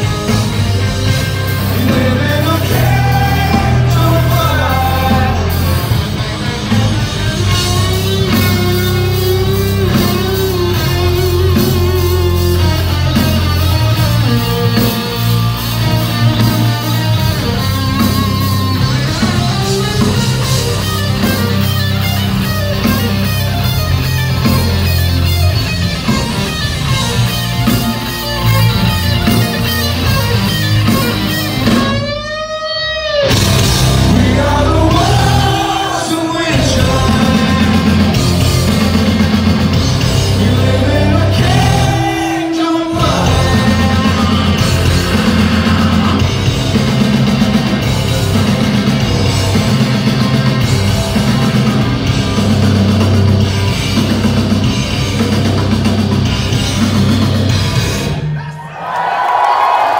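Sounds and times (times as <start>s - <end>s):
distorted electric guitar: 0.0s - 58.6s
bass: 0.0s - 59.9s
drums: 0.0s - 59.9s
person singing: 1.6s - 6.0s, 33.8s - 38.4s, 40.2s - 46.5s.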